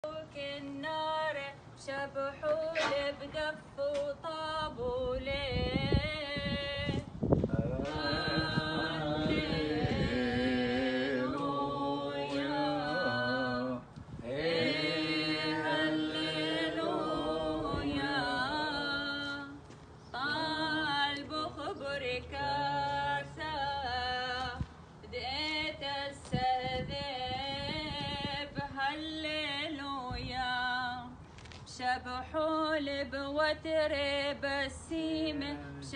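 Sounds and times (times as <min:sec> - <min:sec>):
mixed voices chanting a hymn: 0:07.4 - 0:24.1, 0:35.1 - 0:35.9.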